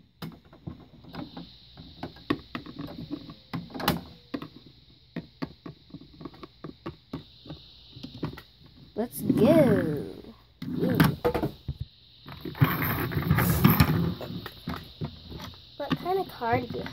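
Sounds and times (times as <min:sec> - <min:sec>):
plastic toys clicking and knocking: 0:00.2 - 0:08.8, 0:12.2 - 0:16.9.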